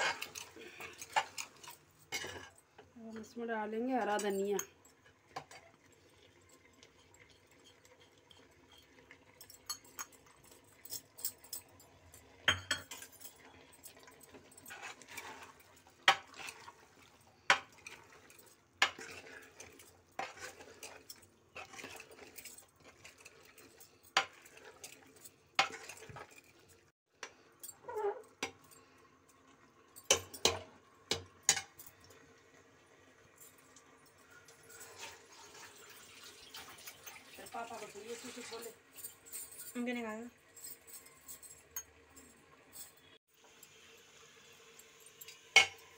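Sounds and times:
metal ladle scraping a pot: 0:00.0 - 0:02.6, 0:14.3 - 0:16.8, 0:17.5 - 0:26.7.

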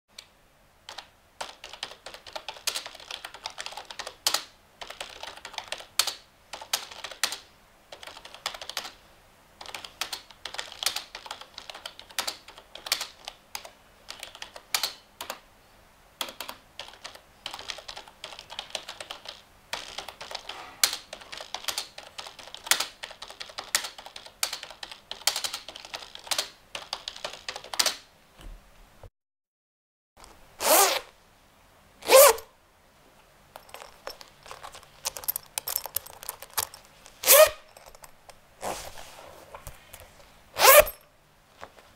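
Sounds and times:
typing on keyboard: 0:00.9 - 0:09.0, 0:09.6 - 0:15.4, 0:16.2 - 0:28.0, 0:33.6 - 0:36.9.

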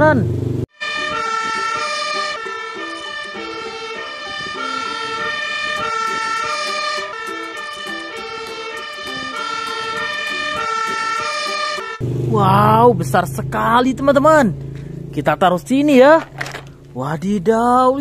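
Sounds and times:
fire engine two-tone siren: 0:00.7 - 0:12.0.

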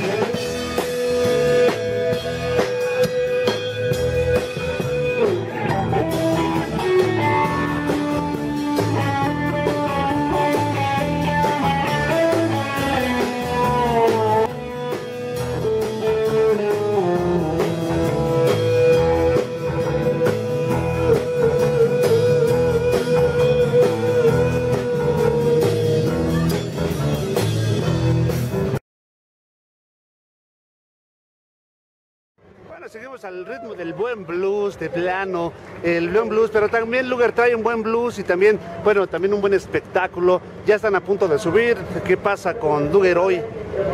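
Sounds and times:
electric guitar solo: 0:00.0 - 0:27.8
blues-rock band playing: 0:00.0 - 0:28.8.

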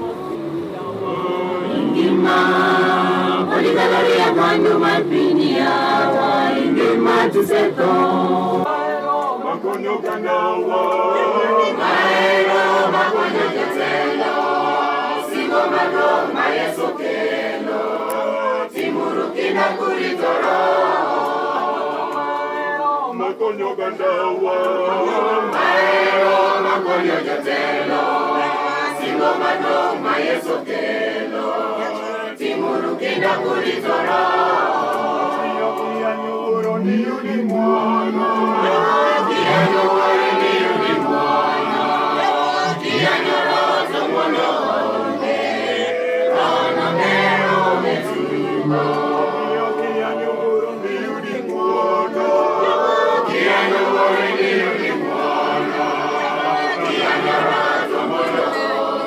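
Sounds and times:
congregation singing a hymn: 0:00.0 - 0:59.0.

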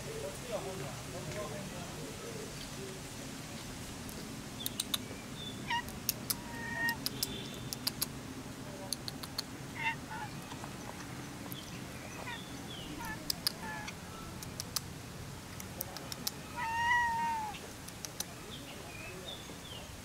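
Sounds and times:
cat meowing: 0:05.6 - 0:07.0, 0:09.8 - 0:10.4, 0:12.2 - 0:13.9, 0:16.4 - 0:17.6.

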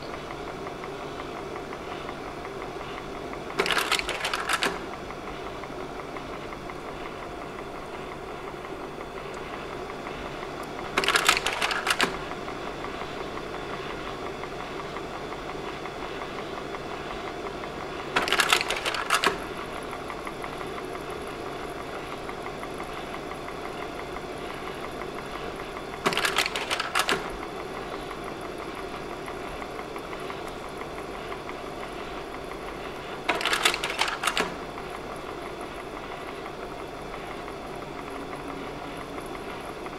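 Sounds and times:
projector fan running: 0:00.0 - 0:39.9
slide-change mechanism clattering: 0:10.9 - 0:12.2, 0:26.0 - 0:27.3, 0:33.3 - 0:34.6.

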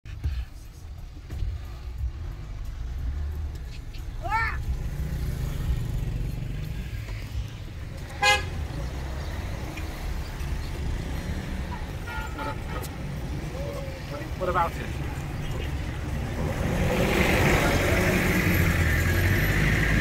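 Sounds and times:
car engine and road rumble: 0:00.0 - 0:20.0
vehicle horn toot: 0:08.1 - 0:08.6, 0:12.0 - 0:13.0.

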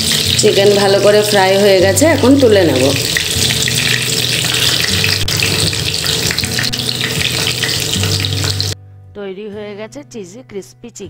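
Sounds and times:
chicken frying in hot oil: 0:00.0 - 0:08.8.

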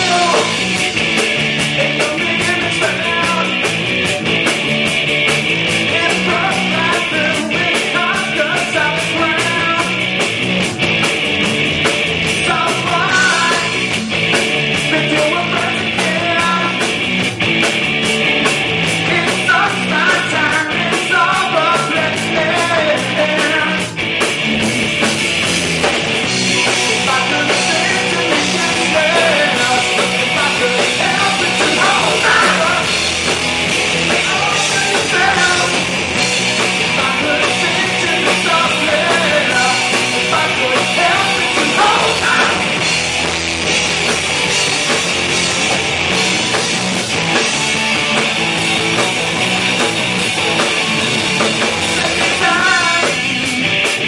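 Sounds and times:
rock band playing live: 0:00.0 - 0:54.0.

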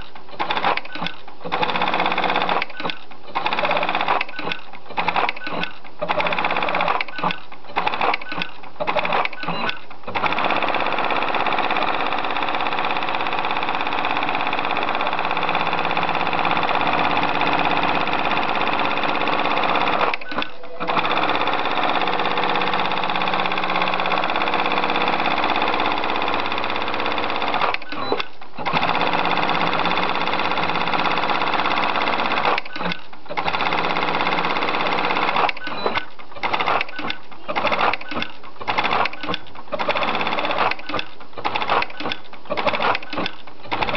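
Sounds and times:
sewing machine running: 0:00.0 - 0:43.9.

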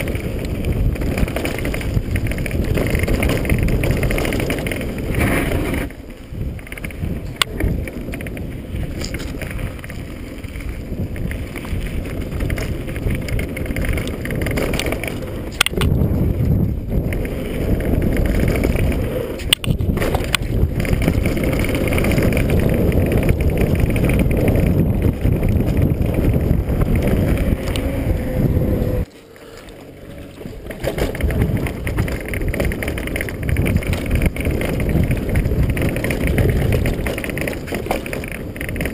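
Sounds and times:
tyre rumble on dirt: 0:00.0 - 0:29.0
wind buffeting microphone: 0:00.0 - 0:29.1, 0:29.8 - 0:38.9
bike rattling: 0:00.0 - 0:38.9.

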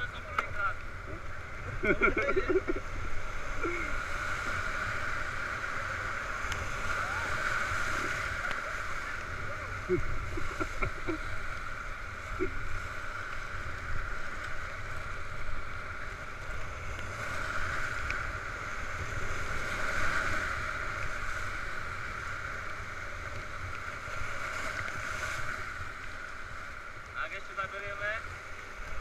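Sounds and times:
whitewater rapids rushing: 0:00.0 - 0:16.1.

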